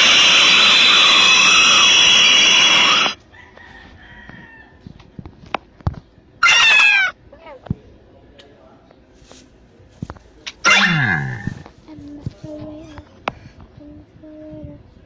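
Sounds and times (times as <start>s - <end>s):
loud noisy sound: 0.0s - 3.2s.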